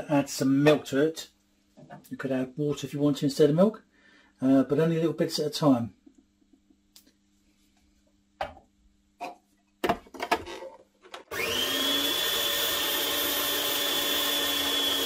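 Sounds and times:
food processor motor whining: 11.2 - 15.0.

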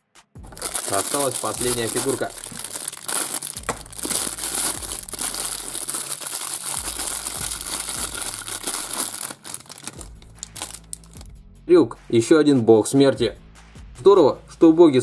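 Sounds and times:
plastic bag crinkling: 0.4 - 11.2.

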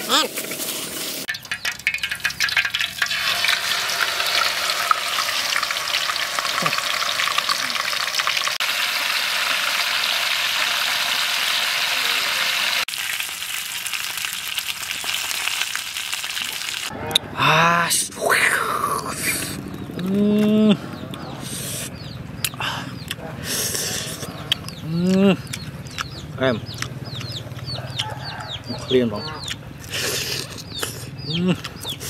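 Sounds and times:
deep-frying oil sizzling: 0.0 - 16.9.

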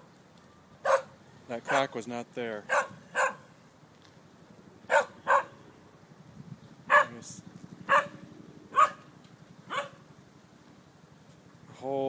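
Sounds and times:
dog barking: 0.8 - 1.1, 1.7 - 1.9, 2.7 - 3.5, 4.9 - 5.6, 6.9 - 7.2, 7.9 - 9.1, 9.7 - 10.0.

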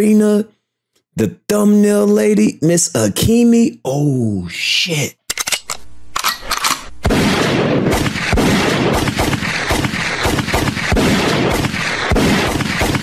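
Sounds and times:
rapid gunshots and booms: 7.0 - 13.0.

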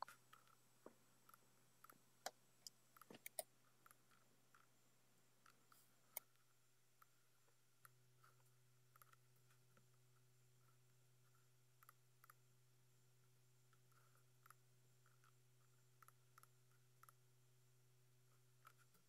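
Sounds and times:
faint low hum: 0.0 - 19.0
computer keyboard and mouse clicks: 1.3 - 4.7.

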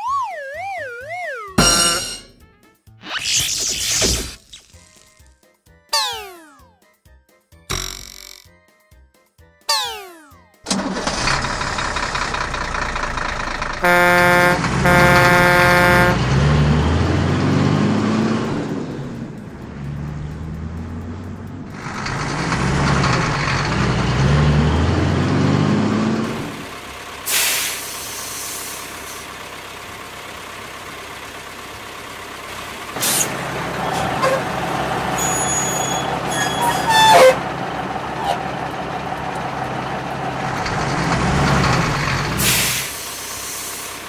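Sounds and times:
truck engine running: 10.7 - 44.0
air brake hiss: 27.3 - 29.2, 42.4 - 44.0.

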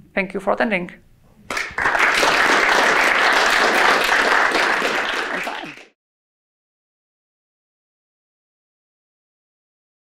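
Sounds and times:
audience applauding: 1.5 - 6.0.

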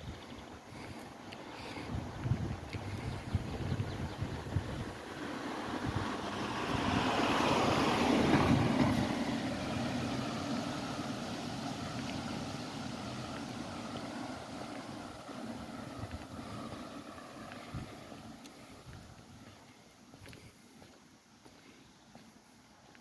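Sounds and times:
vehicle driving past: 4.1 - 19.7.

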